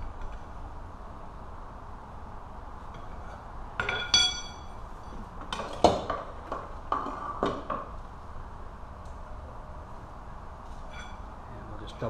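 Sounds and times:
metal clinking: 2.9s - 5.1s, 10.8s - 11.3s
bright metallic pings: 3.8s - 4.8s, 10.9s - 11.3s.

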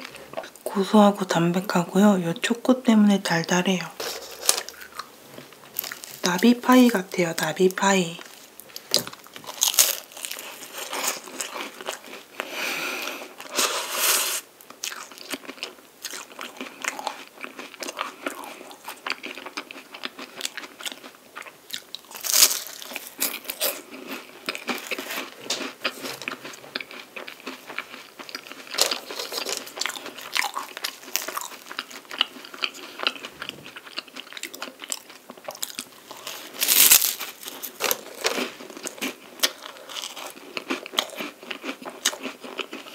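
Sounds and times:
crunchy pastry chewing: 4.1s - 7.0s, 8.2s - 13.6s, 14.6s - 42.9s.

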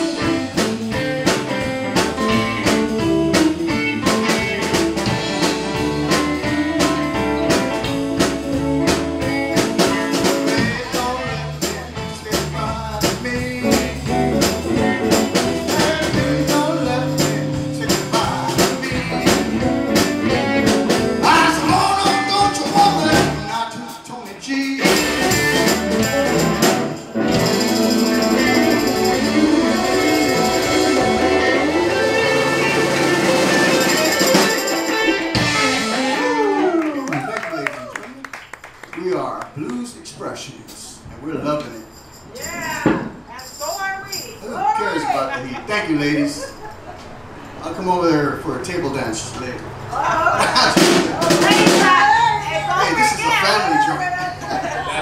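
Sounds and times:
drum kit: 0.0s - 36.8s, 50.0s - 53.4s
electric guitars: 0.0s - 38.2s
bass: 0.0s - 55.0s
tambourine: 24.8s - 31.5s, 32.1s - 35.4s, 41.7s - 44.6s
saxophone: 25.3s - 36.9s.

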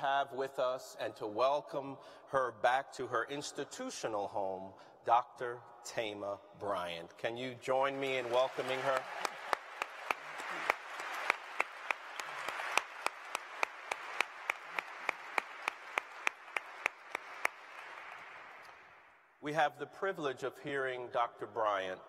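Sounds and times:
audience applauding: 7.7s - 19.0s
loud single person clapping: 8.0s - 18.8s.

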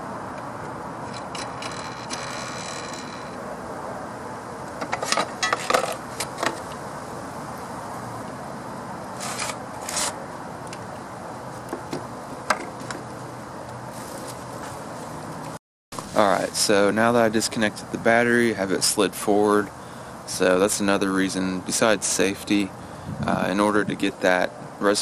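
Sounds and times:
metal and plastic clicks and scrapes: 1.0s - 3.4s, 4.8s - 6.8s, 9.2s - 10.8s
steady background hiss: 2.2s - 25.0s.

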